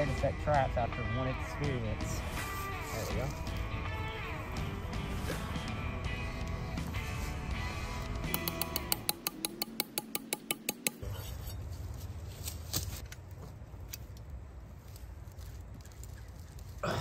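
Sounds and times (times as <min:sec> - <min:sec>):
rapid sharp metallic clicks: 0:08.3 - 0:11.0.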